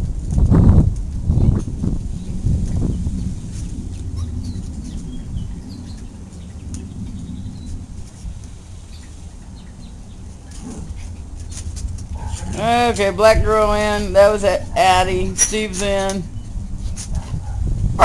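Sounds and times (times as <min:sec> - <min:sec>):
steady low rumble: 0:00.0 - 0:18.0
puppies scuffling: 0:10.2 - 0:17.6.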